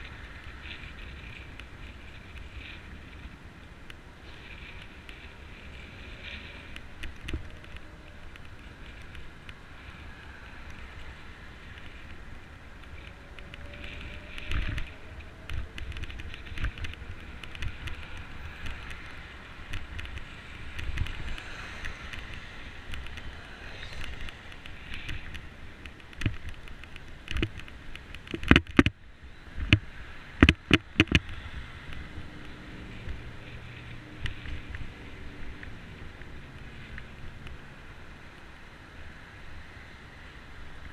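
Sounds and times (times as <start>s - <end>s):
bike rattling over bumps: 0.0s - 29.0s
wind: 0.0s - 40.9s.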